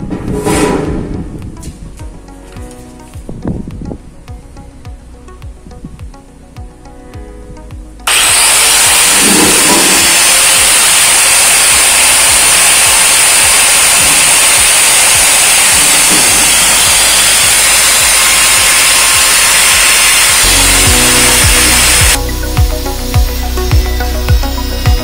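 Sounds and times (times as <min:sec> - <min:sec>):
angle grinder cutting steel: 0:08.1 - 0:25.0.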